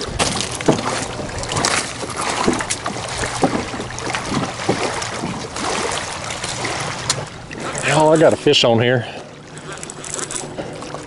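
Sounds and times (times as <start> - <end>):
wind noise on microphone: 0.0 - 2.4
waves lapping against kayak hull: 0.0 - 11.0.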